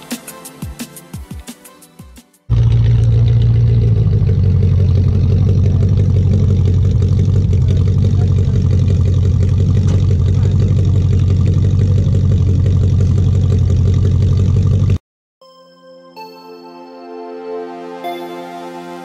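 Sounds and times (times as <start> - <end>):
car engine idling: 2.5 - 15.0.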